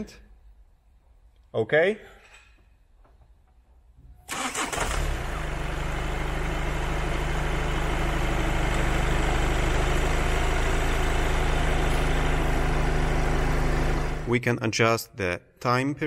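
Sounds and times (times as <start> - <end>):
diesel engine idling: 4.3 - 14.3.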